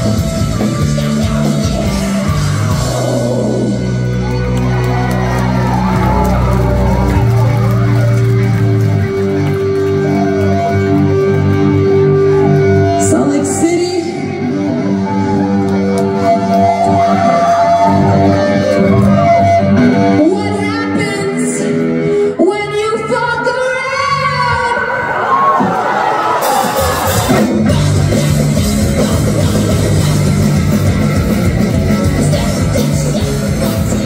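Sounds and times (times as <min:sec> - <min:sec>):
person singing: 0:00.0 - 0:03.8, 0:26.5 - 0:34.0
electric guitars ringing chords: 0:00.0 - 0:22.4, 0:27.1 - 0:34.0.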